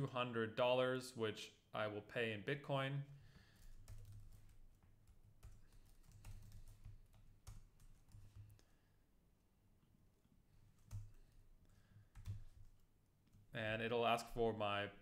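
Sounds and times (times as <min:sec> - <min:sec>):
computer keyboard typing: 0:03.5 - 0:08.6, 0:10.8 - 0:11.4, 0:12.1 - 0:13.4.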